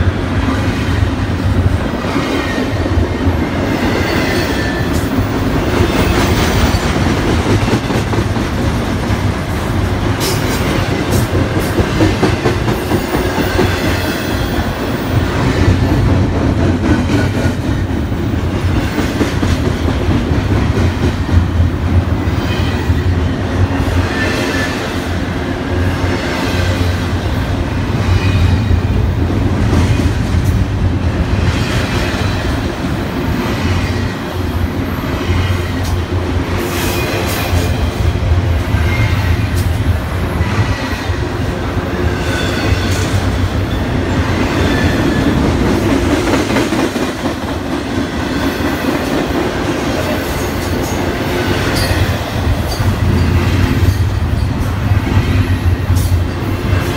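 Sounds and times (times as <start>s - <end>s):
train wheels rumbling on rail: 0.0s - 56.9s
clickety-clack over rail joints: 0.5s - 24.9s, 42.0s - 56.9s.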